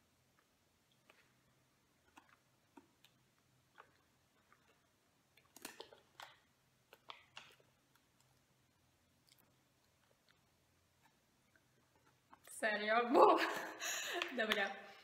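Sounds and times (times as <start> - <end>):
wet mouth clicks from chewing: 0.9 - 8.4, 9.2 - 12.5.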